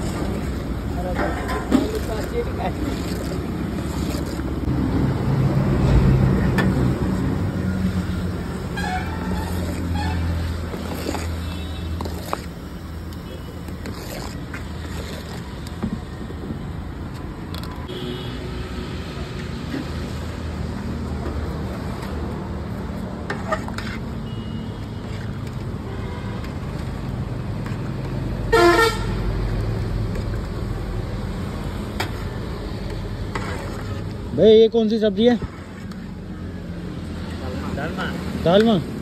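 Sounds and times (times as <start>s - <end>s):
street traffic rumble: 0.0s - 39.0s
vehicle horn honking: 17.9s - 18.4s, 28.5s - 29.2s.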